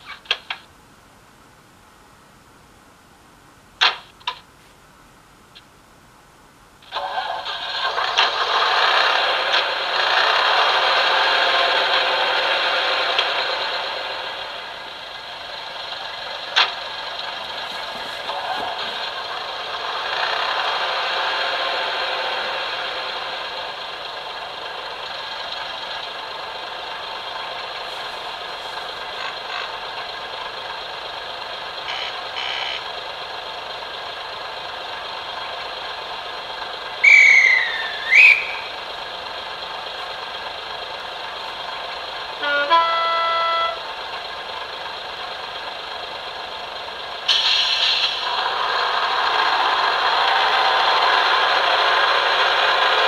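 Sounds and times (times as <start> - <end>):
diesel engine idling: 6.9 - 53.0
gliding whistle notes: 37.0 - 38.8
train horn: 42.4 - 43.9.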